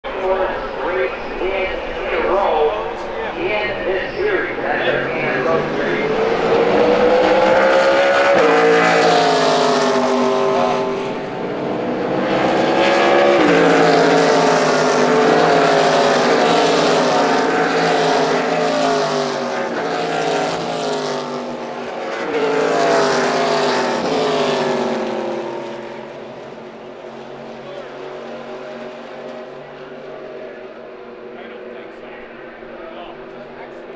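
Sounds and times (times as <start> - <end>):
stock cars racing past: 0.0 - 33.9.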